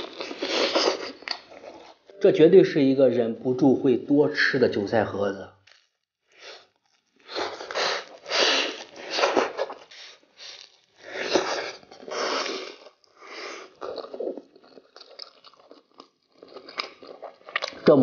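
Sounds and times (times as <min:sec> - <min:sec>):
crunchy bites and chewing: 0:05.6 - 0:18.0.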